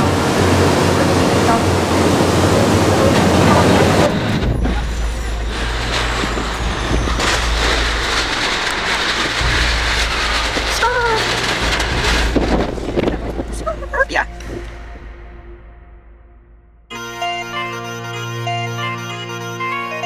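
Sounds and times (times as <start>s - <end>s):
rushing water of boat wake: 0.0s - 13.6s
car cabin rumble: 0.0s - 15.7s
wind: 0.0s - 16.1s.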